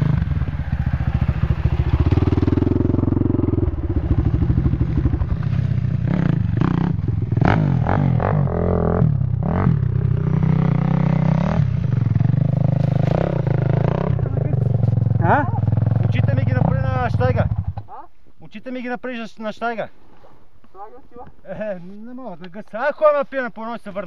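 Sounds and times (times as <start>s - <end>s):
atv engine revving: 0.0s - 18.0s.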